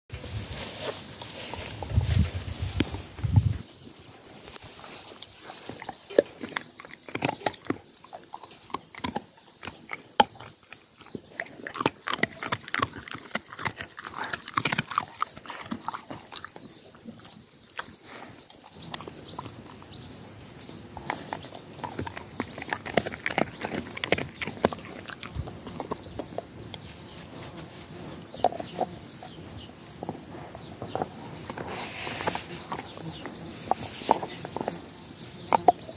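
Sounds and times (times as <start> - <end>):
dog chewing food: 5.6 - 20.0, 20.8 - 27.0, 30.0 - 34.9.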